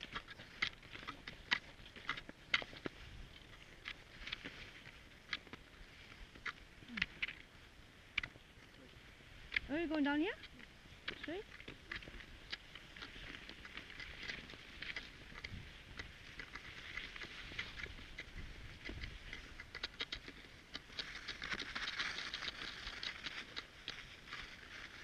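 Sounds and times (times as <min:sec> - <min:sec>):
skis sliding over snow: 0:20.0 - 0:25.0.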